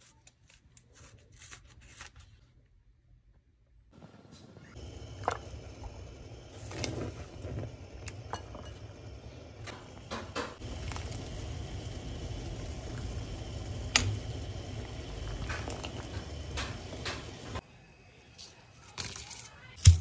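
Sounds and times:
water boiling and bubbling: 0:04.0 - 0:17.6.

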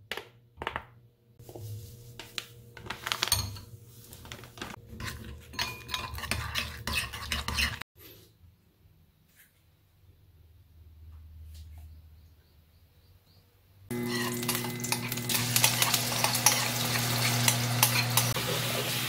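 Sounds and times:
metal spoon scraping a bowl: 0:04.9 - 0:07.8, 0:13.9 - 0:18.4.

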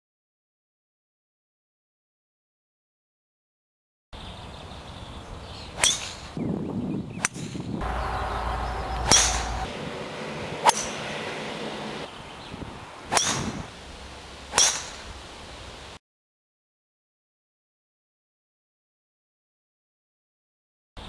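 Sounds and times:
golf club striking ball: 0:05.8 - 0:06.4, 0:07.2 - 0:12.1, 0:13.1 - 0:15.2.

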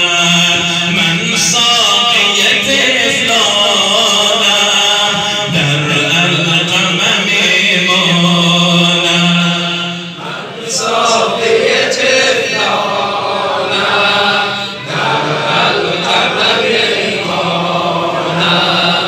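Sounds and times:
men chanting in unison: 0:00.0 - 0:19.0
person reciting into microphone: 0:00.0 - 0:19.0.

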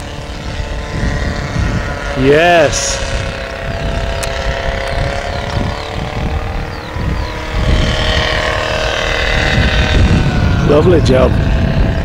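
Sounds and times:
paramotor engine droning overhead: 0:00.0 - 0:12.0.

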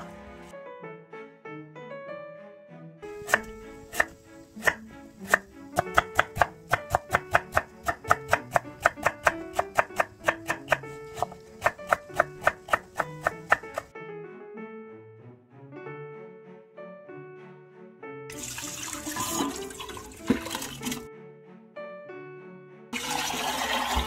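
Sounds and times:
knife chopping on wooden board: 0:03.2 - 0:13.9.

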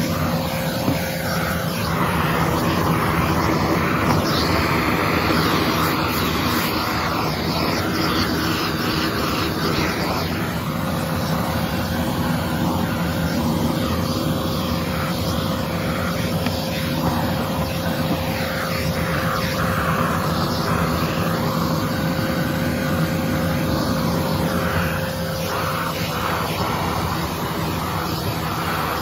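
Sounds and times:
vacuum cleaner running: 0:00.0 - 0:29.0
vacuum nozzle on carpet: 0:00.0 - 0:29.0.

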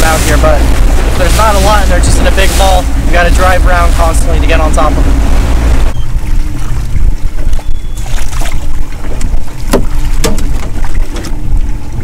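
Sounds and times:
steady low hum: 0:00.0 - 0:12.0
wind rumble on microphone: 0:00.0 - 0:12.0
fish flapping against boat: 0:06.2 - 0:12.0.

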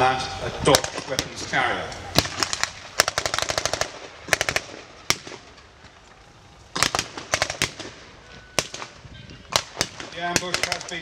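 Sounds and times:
automatic gunfire bursts: 0:02.2 - 0:05.4, 0:06.8 - 0:08.0, 0:08.6 - 0:11.0
wind rumble on microphone: 0:07.9 - 0:10.3.

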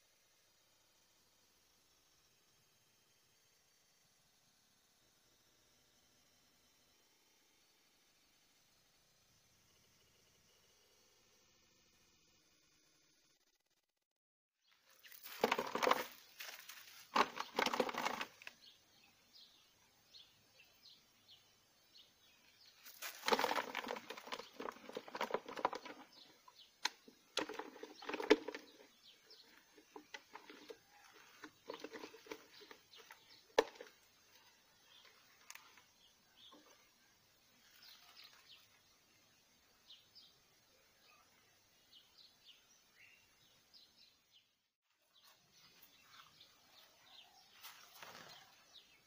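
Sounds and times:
plastic bottle rattling and crinkling: 0:14.9 - 0:18.6, 0:22.9 - 0:35.7
bird wings fluttering: 0:22.8 - 0:26.2, 0:47.5 - 0:48.6.

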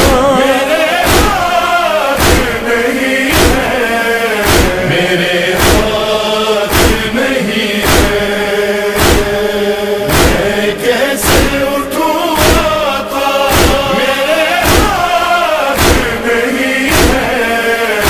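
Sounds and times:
deep rhythmic thumps: 0:00.0 - 0:17.6
chorus of voices chanting: 0:00.0 - 0:18.0.

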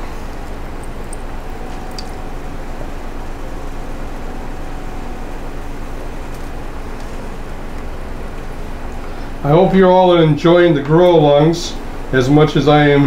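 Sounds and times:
machine hum with hiss: 0:00.0 - 0:13.0
faint held tone: 0:01.1 - 0:06.2.

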